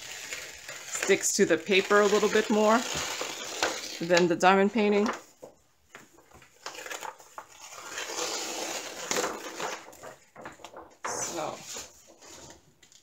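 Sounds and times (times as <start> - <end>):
paper rustling and crinkling: 0.0 - 4.2, 4.8 - 13.0.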